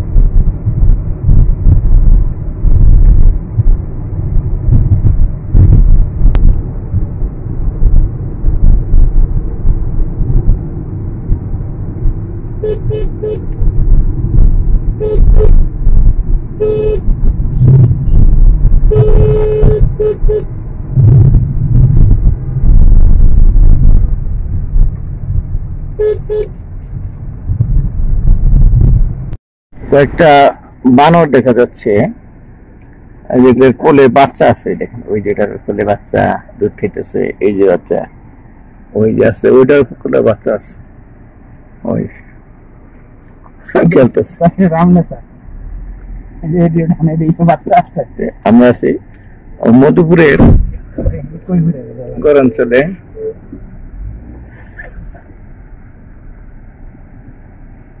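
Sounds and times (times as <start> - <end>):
car road and engine rumble: 0.0 - 58.0
car horn beeps: 12.6 - 13.6, 15.0 - 15.6, 16.6 - 20.5, 26.0 - 26.6.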